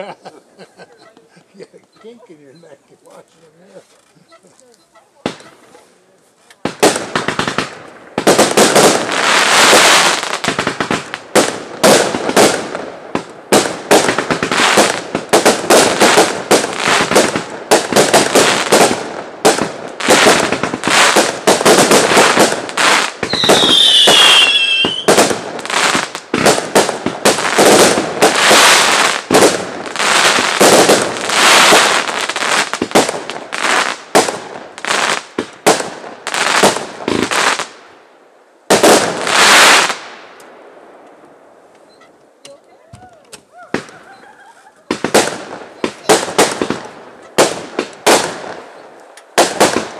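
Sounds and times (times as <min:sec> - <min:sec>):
fireworks bangs and crackling: 0:05.2 - 0:05.8, 0:06.5 - 0:38.0, 0:38.6 - 0:41.2, 0:42.5 - 0:49.9
falling firework whistle: 0:23.2 - 0:25.2.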